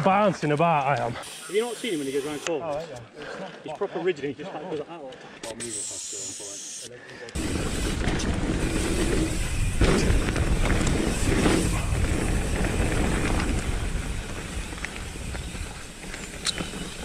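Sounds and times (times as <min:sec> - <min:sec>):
bike rattling and clicking: 0:07.3 - 0:17.0
tyre noise: 0:07.4 - 0:17.0
wind rush on microphone: 0:07.4 - 0:17.0.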